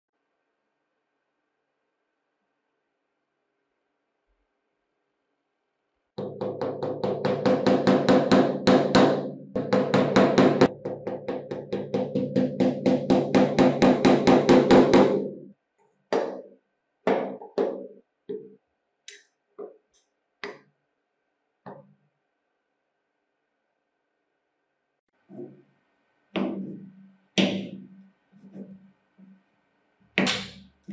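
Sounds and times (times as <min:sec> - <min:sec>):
hammer tapping nails: 0:06.2 - 0:15.4.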